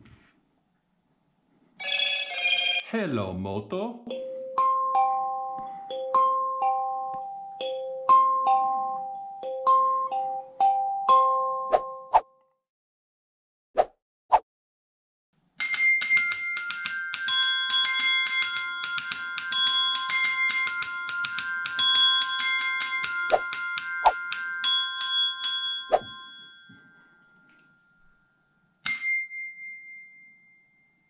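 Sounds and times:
desk bells ringing melody: 0:15.6 - 0:31.0.

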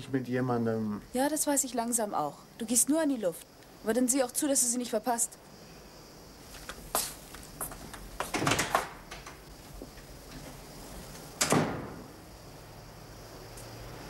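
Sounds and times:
door shutting thud: 0:08.2 - 0:10.6, 0:11.2 - 0:12.2
door latch clicks and rattles: 0:08.3 - 0:09.4, 0:11.4 - 0:12.0.

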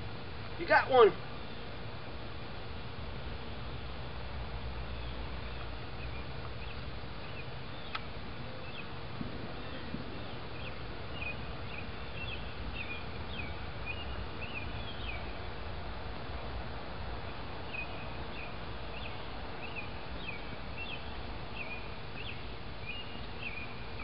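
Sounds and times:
low outdoor rumble: 0:00.0 - 0:24.0
small birds chirping: 0:03.2 - 0:15.5, 0:17.3 - 0:24.0.

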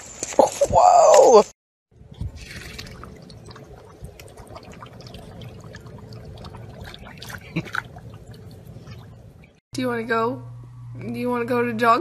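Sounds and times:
dog splashing water in metal bowl: 0:02.1 - 0:09.6.

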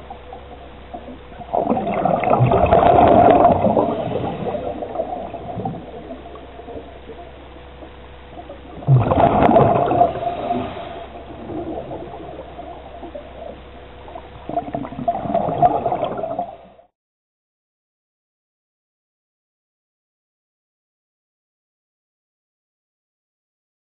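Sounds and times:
faint water hiss: 0:00.0 - 0:16.9
underwater bubbling gurgle: 0:00.0 - 0:16.9.

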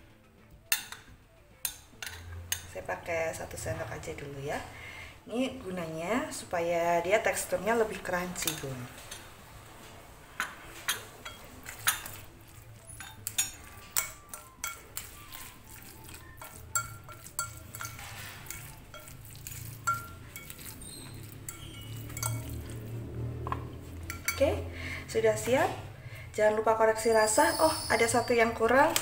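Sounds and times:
metal utensil scraping glass bowl: 0:10.4 - 0:23.0.

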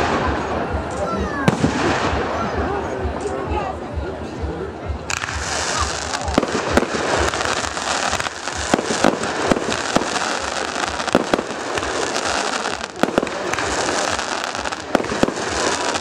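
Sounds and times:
fireworks sharp bangs: 0:01.4 - 0:02.4, 0:05.1 - 0:16.0
hissing crackle of burning stars: 0:05.2 - 0:16.0.

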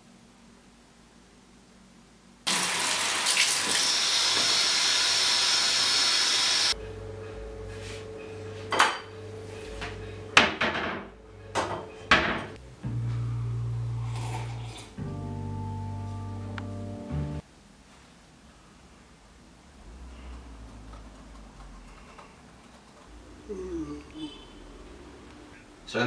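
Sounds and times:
low hum: 0:06.7 - 0:10.4, 0:11.0 - 0:17.4.

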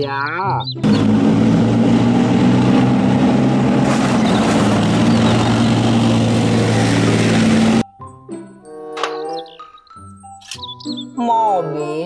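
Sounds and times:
tank diesel engine: 0:00.6 - 0:07.8
steel tracks running: 0:00.8 - 0:07.8.

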